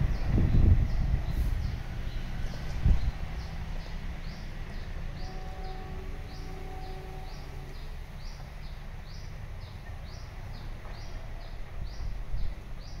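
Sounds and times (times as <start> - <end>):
steady low rumble: 0.0 - 5.3.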